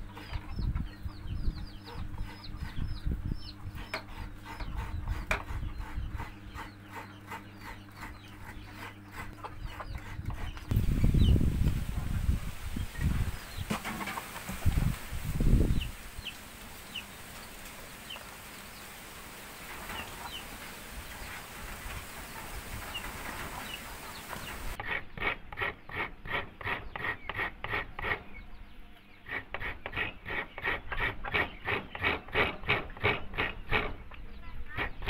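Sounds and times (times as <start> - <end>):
coconut grating by hand: 3.8 - 10.8, 24.6 - 28.3, 29.3 - 34.0, 34.7 - 35.0.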